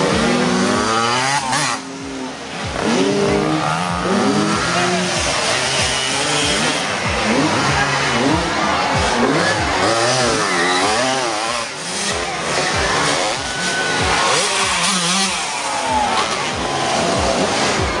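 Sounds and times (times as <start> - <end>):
dirt bike passing close: 0.0 - 18.0
dirt bikes revving: 0.0 - 18.0.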